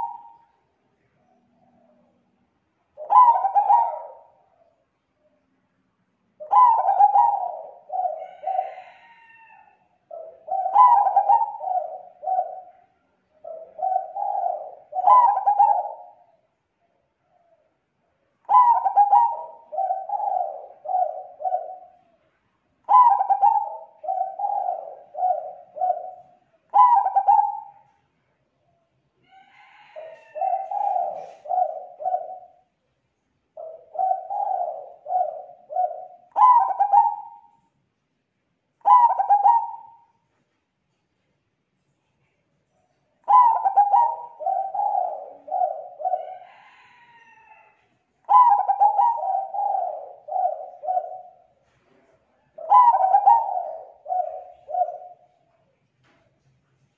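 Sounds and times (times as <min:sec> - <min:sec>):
dove cooing: 0:00.0 - 0:00.6, 0:01.2 - 0:04.8, 0:06.4 - 0:16.5, 0:18.4 - 0:22.2, 0:22.8 - 0:28.0, 0:29.3 - 0:32.7, 0:33.6 - 0:37.6, 0:38.8 - 0:40.2, 0:43.2 - 0:55.5.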